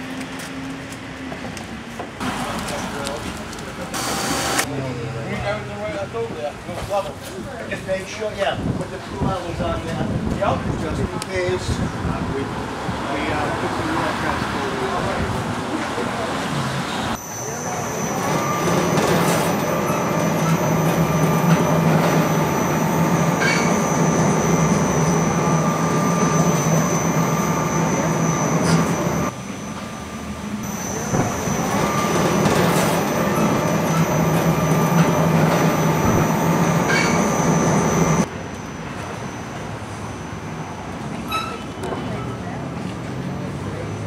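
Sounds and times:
hoist electric motor humming and whining: 4.0 - 4.7, 17.2 - 38.3.

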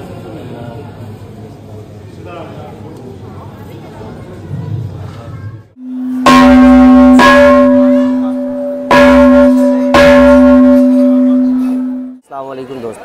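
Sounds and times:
gong struck with mallet: 5.8 - 12.2.

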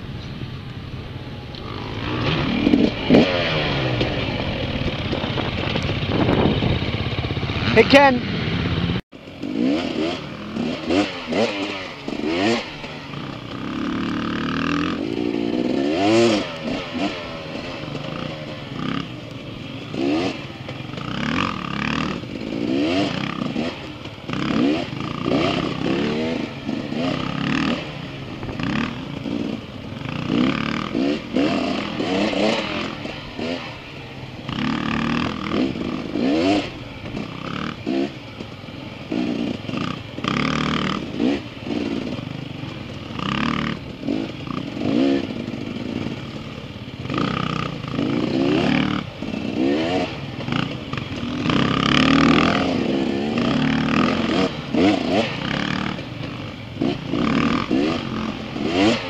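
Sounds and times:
dirt bike engines revving: 0.0 - 59.0.

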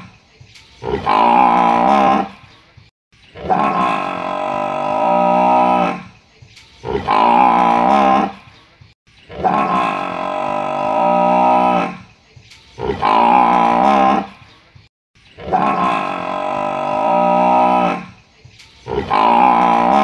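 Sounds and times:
buffalo bellowing: 0.8 - 2.4, 3.4 - 6.2, 6.8 - 8.4, 9.3 - 12.1, 12.8 - 14.4, 15.4 - 18.2, 18.8 - 20.0.

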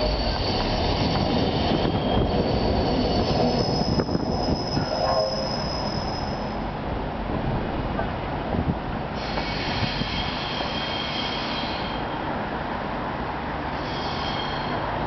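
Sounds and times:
train wheels squealing: 0.0 - 6.6, 9.2 - 12.3, 13.6 - 15.0.

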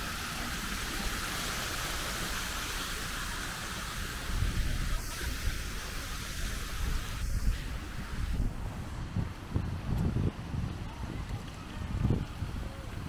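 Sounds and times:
steady outdoor hiss: 0.0 - 13.0
wind buffeting microphone: 4.0 - 13.0.

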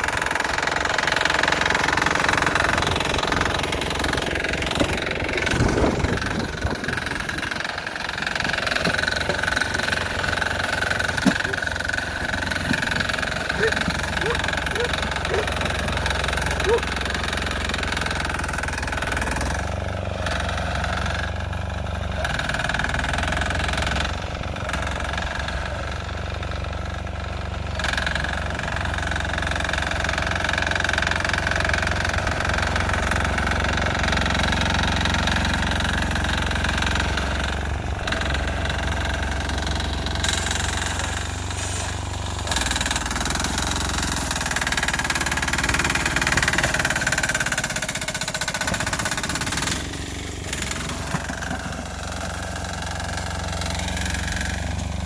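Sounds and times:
diesel engine running: 0.0 - 55.0
hiss: 40.4 - 42.2.

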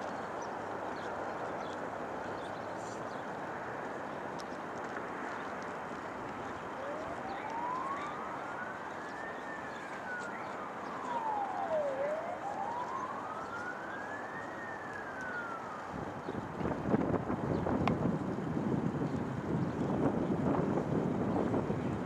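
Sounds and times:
background noise: 0.0 - 22.0
emergency vehicle siren wailing: 4.8 - 17.2.

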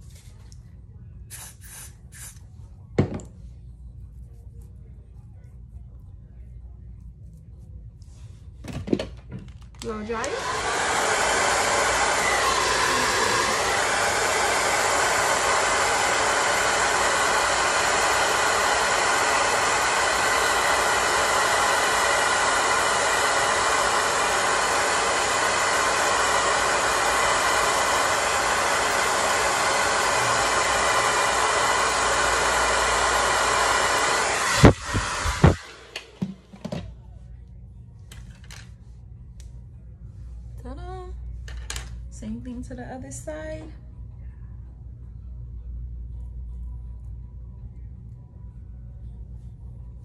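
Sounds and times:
hair dryer blowing: 9.8 - 36.9.

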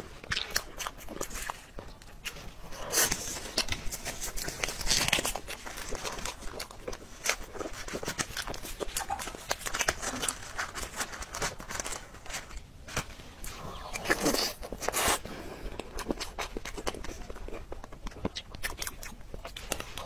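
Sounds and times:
plastic glove crinkling: 1.2 - 15.2.

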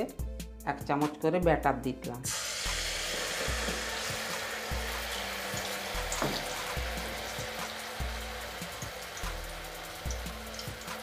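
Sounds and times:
batter sizzling in hot oil: 2.3 - 11.0.

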